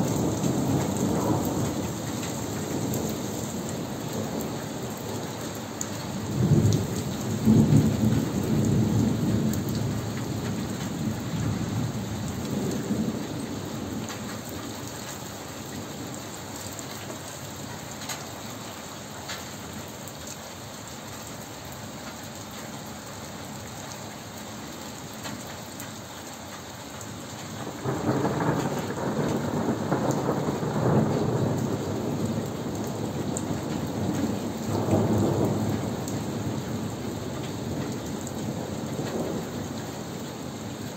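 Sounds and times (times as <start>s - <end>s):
thunder rumbling: 0.0s - 4.5s, 6.2s - 14.0s, 27.7s - 40.9s
steady rain falling: 0.0s - 40.9s.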